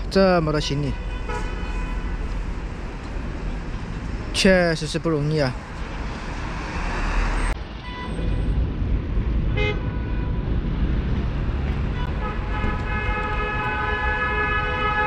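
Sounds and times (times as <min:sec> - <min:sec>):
street traffic: 0:00.0 - 0:15.0
long steady horn blast: 0:00.9 - 0:02.3, 0:11.9 - 0:15.0.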